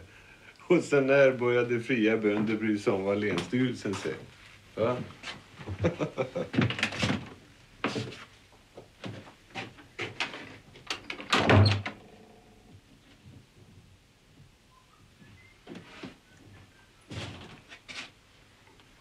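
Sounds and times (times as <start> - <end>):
door shutting with heavy thud: 11.2 - 12.0.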